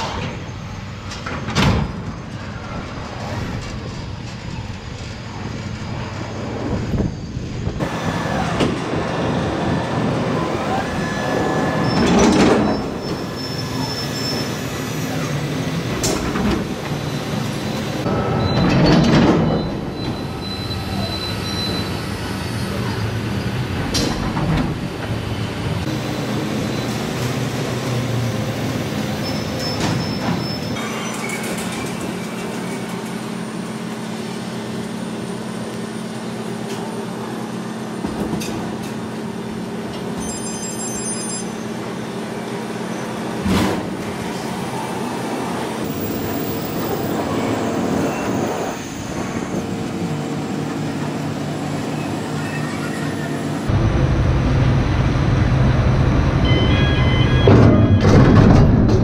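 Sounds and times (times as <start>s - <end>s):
crane mechanical drone: 0.0s - 59.0s
loud metallic clangs: 57.4s - 59.0s.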